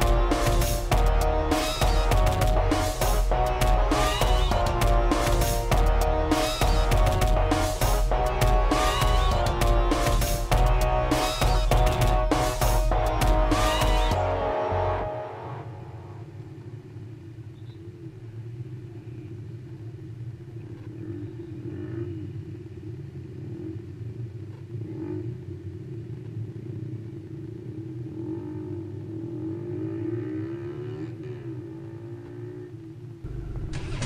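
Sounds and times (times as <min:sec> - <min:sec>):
vehicle approaching: 0:00.0 - 0:34.0
motorcycle engine idling: 0:33.2 - 0:34.0.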